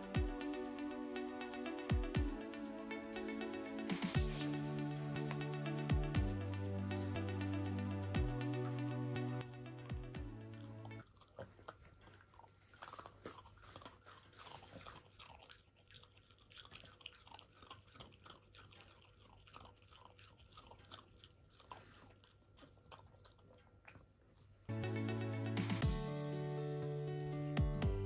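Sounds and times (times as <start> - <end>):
background music: 0.0 - 11.0, 24.7 - 28.0
dog chewing: 10.5 - 24.7.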